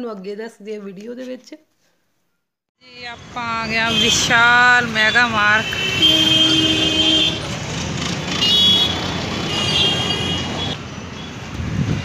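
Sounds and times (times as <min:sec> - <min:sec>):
street traffic: 0:02.8 - 0:12.0
vehicle horn honking: 0:03.7 - 0:07.5, 0:08.4 - 0:10.8.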